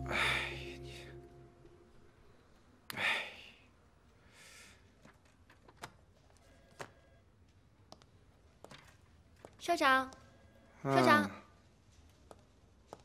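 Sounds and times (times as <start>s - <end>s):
man sighing: 0.0s - 1.2s.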